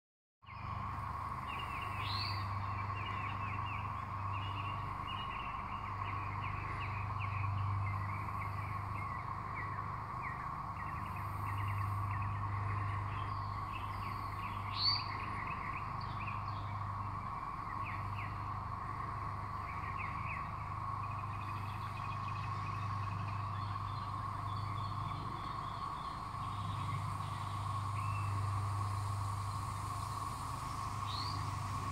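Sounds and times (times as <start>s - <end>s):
cicadas droning: 0.4s - 31.9s
songbirds chirping: 0.4s - 31.9s.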